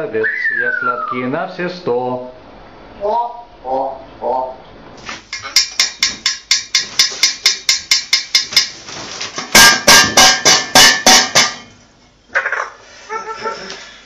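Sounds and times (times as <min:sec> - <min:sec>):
louder knocks: 0:09.6 - 0:11.6.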